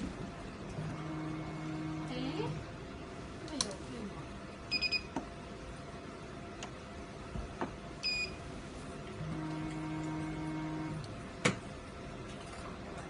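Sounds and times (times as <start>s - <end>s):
motor hum: 0.0s - 3.0s, 9.1s - 11.2s.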